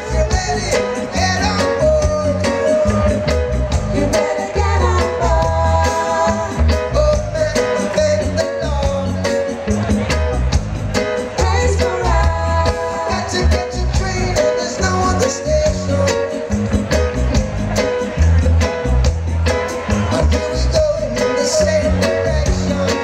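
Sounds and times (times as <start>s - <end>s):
man singing into a microphone: 0.0s - 9.6s, 11.3s - 16.7s, 20.1s - 23.0s
heavy bass: 0.0s - 23.0s
live reggae band playing: 0.0s - 23.0s.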